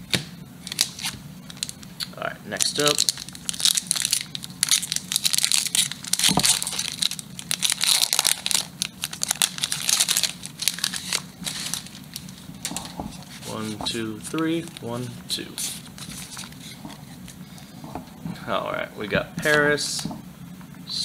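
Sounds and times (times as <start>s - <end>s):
foil wrapper crinkling and tearing: 0.6s - 1.9s, 2.5s - 13.7s.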